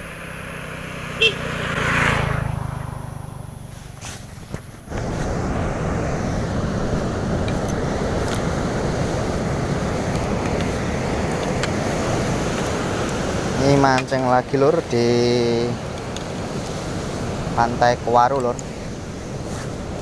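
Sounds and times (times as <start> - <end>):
motorcycle engine running: 0.0 - 13.4.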